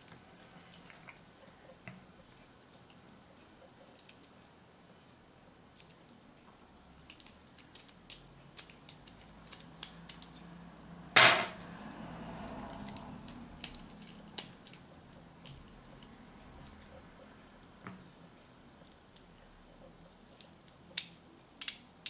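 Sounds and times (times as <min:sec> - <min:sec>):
metal pick clattering on table: 0:11.2 - 0:11.7.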